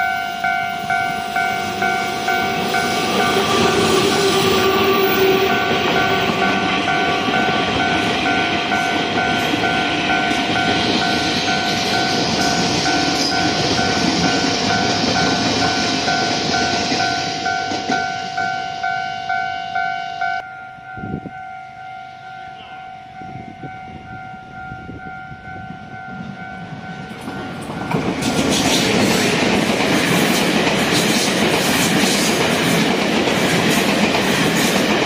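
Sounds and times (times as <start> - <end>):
train wheels on rails: 0.0 - 19.5, 23.5 - 35.0
level crossing warning bell: 0.0 - 28.2.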